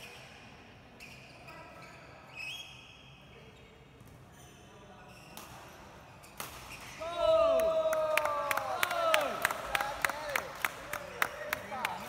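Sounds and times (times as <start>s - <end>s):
shoes squeaking on court floor: 1.0s - 7.0s.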